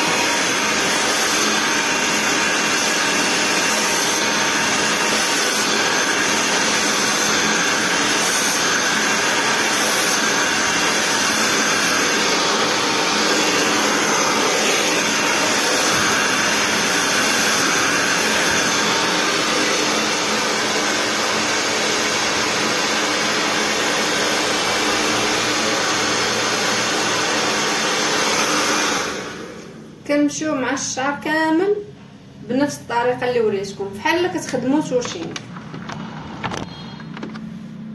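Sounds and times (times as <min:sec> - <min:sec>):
hair dryer blowing: 0:00.0 - 0:30.0.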